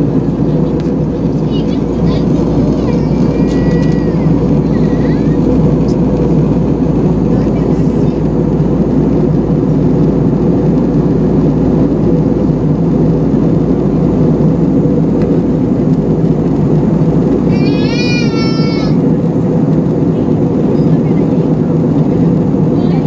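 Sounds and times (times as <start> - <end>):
airplane cabin roar: 0.0 - 23.0
small child crying: 2.8 - 5.4, 17.5 - 19.0.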